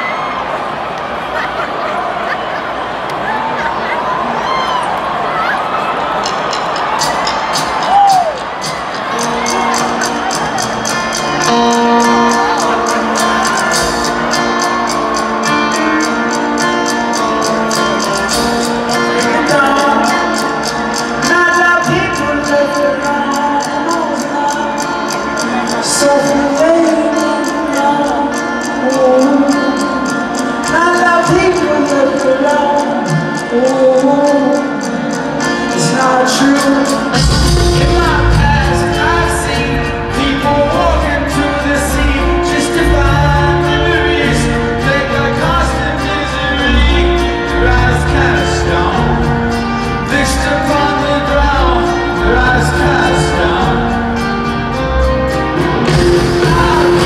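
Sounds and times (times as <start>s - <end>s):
guitar: 0.0s - 57.0s
drums: 5.9s - 57.0s
person singing: 7.0s - 57.0s
bass: 37.1s - 57.0s.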